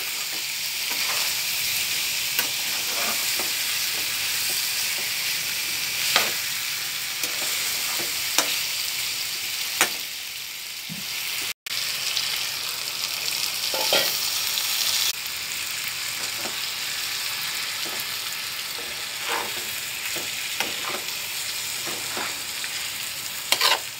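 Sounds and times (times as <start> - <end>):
metal spatula scraping a pan: 0.0 - 6.5, 7.2 - 8.6, 13.7 - 14.2, 17.7 - 23.9
curry sizzling in a pan: 0.0 - 23.9.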